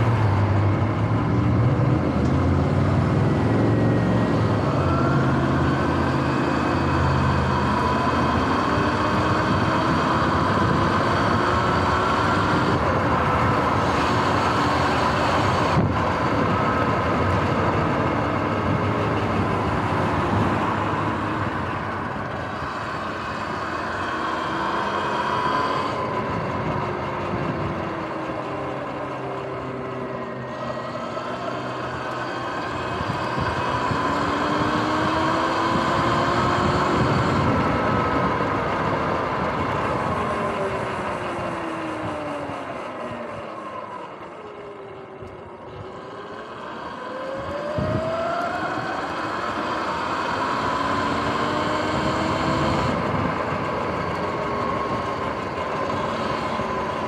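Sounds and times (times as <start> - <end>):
wind rush: 0.0 - 42.6, 47.3 - 49.2
electric motorbike motor whine: 0.0 - 57.0.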